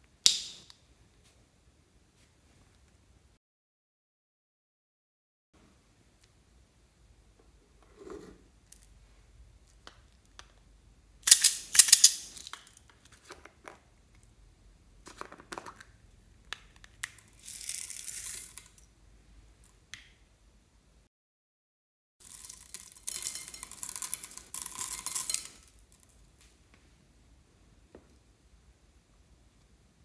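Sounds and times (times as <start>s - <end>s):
beads rattling into a hand: 17.3s - 18.8s, 22.2s - 26.2s.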